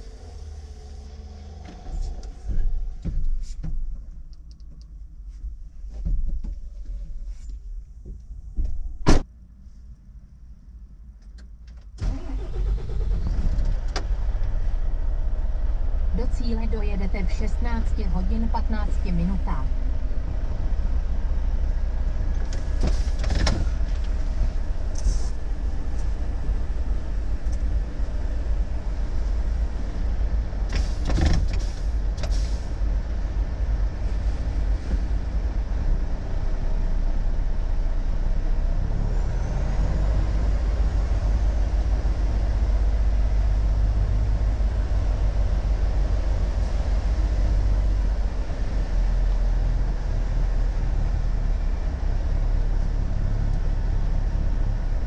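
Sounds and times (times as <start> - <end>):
truck diesel engine running: 12.0 - 55.0.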